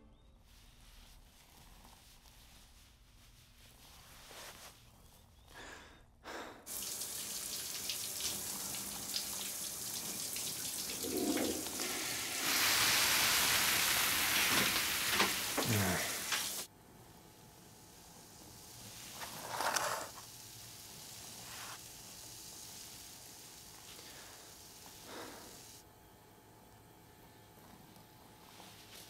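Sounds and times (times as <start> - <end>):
shower water running: 6.7 - 16.7, 17.8 - 25.8.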